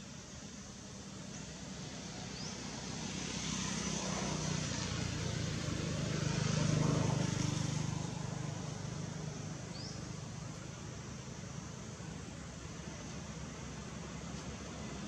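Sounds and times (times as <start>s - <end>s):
engine passing by: 1.7s - 11.2s.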